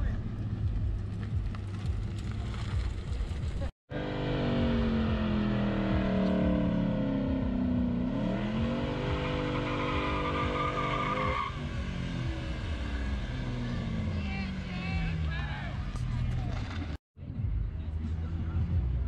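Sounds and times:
car engine revving: 0.0 - 17.0
tyres squealing: 9.0 - 11.8.

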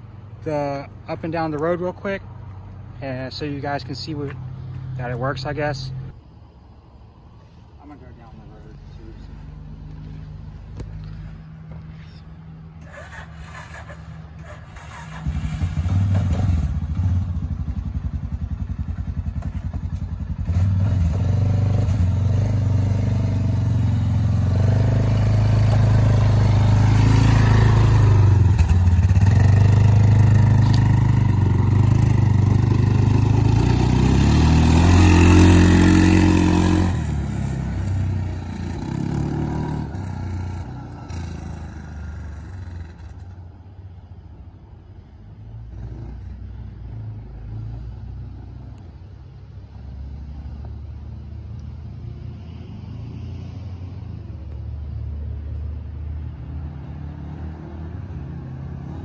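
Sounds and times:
quad bike engine revving: 12.8 - 43.3.

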